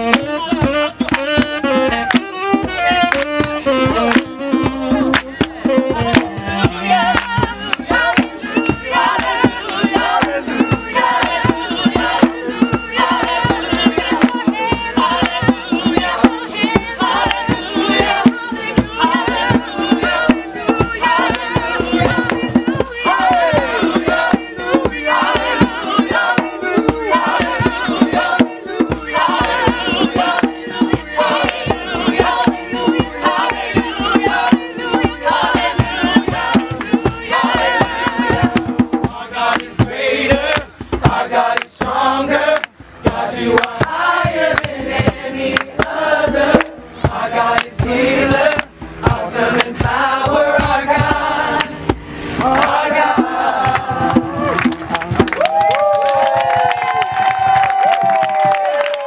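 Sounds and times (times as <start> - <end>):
group singing a worship song: 0.0 - 54.7
hand clapping: 1.0 - 2.4, 3.0 - 4.4, 5.1 - 6.4, 7.1 - 8.3, 15.2 - 15.4, 17.3 - 17.5, 41.5 - 41.7, 42.5 - 42.8, 43.6 - 44.8, 45.5 - 46.0, 46.6 - 46.8, 47.5 - 47.8, 48.5 - 48.8, 51.6 - 51.8, 53.6 - 59.0.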